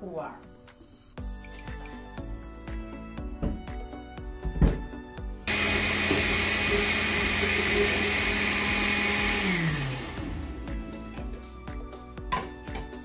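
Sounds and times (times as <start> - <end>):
blender running: 5.5 - 11.2.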